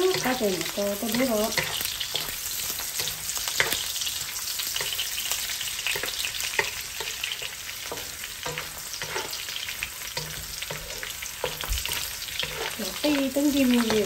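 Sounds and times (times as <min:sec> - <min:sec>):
meat sizzling in hot oil: 0:00.0 - 0:14.0
utensil scraping a pan: 0:01.1 - 0:14.0.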